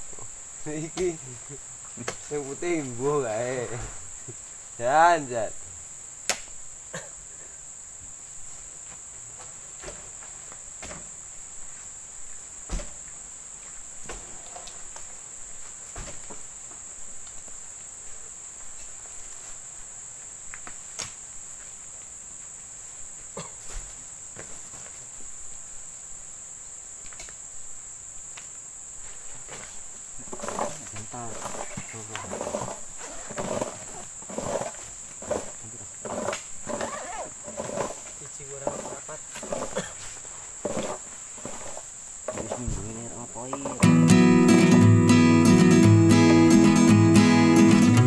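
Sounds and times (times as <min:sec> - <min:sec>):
fruit bunches thudding onto truck: 0:09.4 - 0:11.2, 0:12.6 - 0:13.1, 0:14.0 - 0:15.0, 0:15.7 - 0:16.5, 0:42.3 - 0:43.0.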